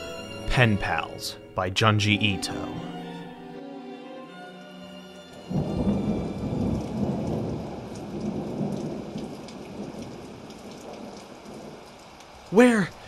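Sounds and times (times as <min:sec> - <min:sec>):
steady rain: 0:04.3 - 0:13.0
thunder rumbling: 0:05.5 - 0:12.4.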